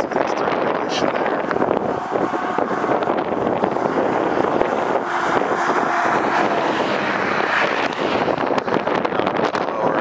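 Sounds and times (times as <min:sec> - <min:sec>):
car passing: 0:00.0 - 0:10.0
wind roaring over microphone: 0:00.0 - 0:10.0.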